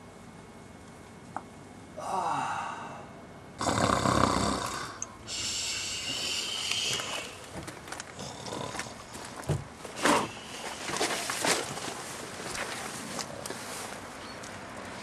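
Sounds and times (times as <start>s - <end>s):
man snoring: 2.0s - 7.4s, 8.2s - 9.1s.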